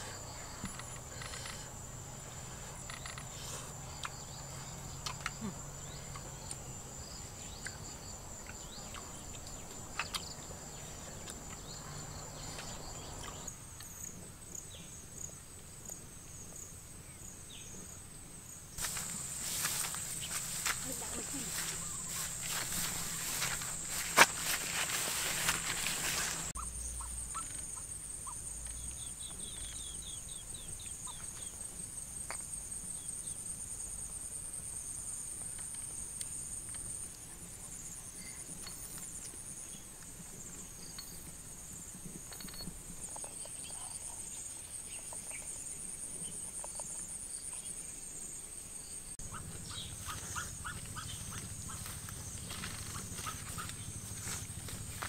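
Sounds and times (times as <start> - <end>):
insect chirps: 0.0 - 55.0
insects buzzing: 0.0 - 55.0.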